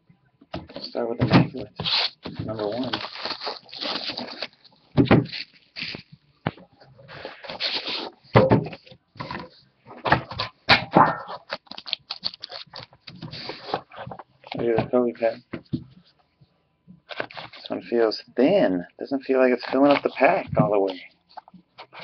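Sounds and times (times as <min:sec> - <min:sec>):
plastic shrink wrap crinkling: 0:01.8 - 0:06.3, 0:11.3 - 0:14.6, 0:19.6 - 0:22.0.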